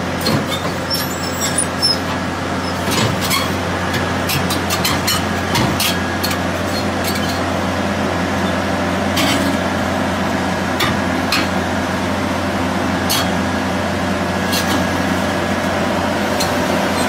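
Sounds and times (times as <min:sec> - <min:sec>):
truck engine drone: 0:00.0 - 0:17.0.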